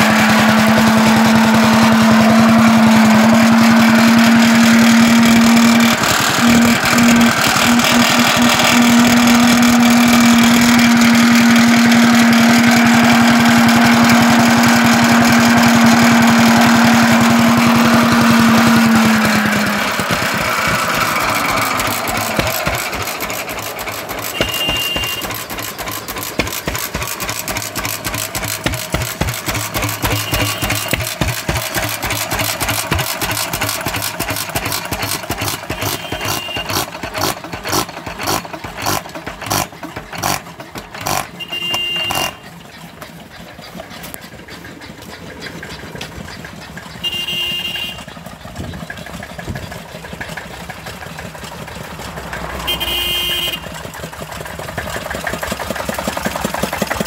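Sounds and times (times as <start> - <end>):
single-cylinder engine firing: 0.0 - 42.6
loud steady engine hum: 0.0 - 57.0.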